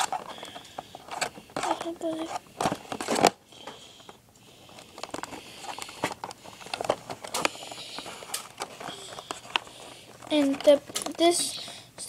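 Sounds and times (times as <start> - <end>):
plastic packaging crinkling: 0.0 - 11.8
sharp plastic clicks: 4.9 - 11.8.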